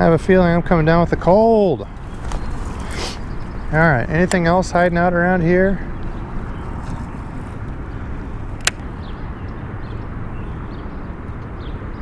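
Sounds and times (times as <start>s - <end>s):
sharp click: 8.6s - 8.9s.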